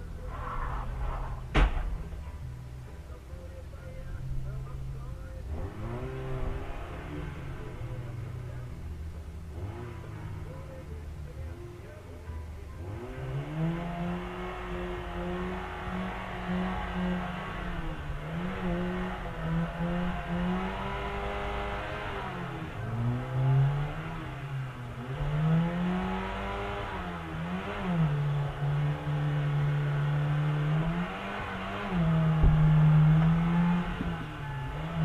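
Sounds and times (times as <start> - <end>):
car engine revving: 0.0 - 35.0
sharp knock: 1.5 - 2.0.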